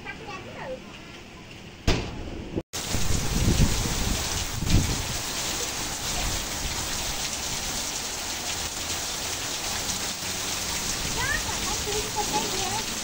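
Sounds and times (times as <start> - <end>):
heavy rain on ground and water: 2.8 - 13.0.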